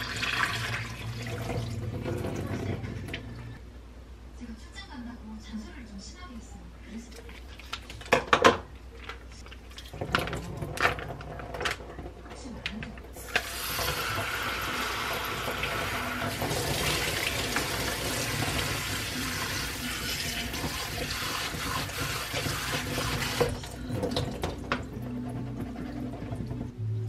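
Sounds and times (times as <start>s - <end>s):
tap water splashing into sink: 13.3s - 24.9s.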